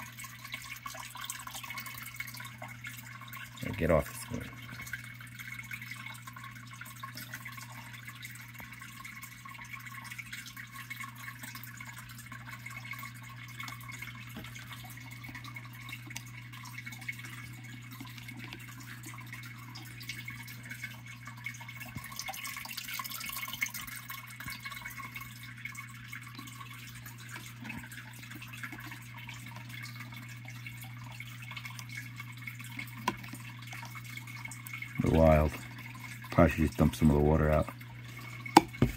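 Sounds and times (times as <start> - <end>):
water trickling and dripping: 0.0 - 38.9.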